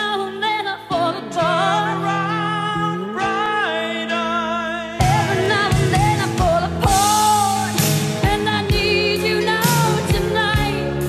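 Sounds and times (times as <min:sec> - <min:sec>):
person singing over band: 0:01.3 - 0:11.0
drums beating steadily: 0:05.0 - 0:11.0.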